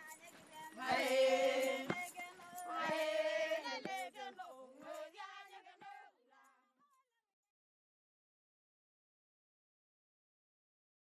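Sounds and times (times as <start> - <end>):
voices singing held notes: 0.0 - 6.2.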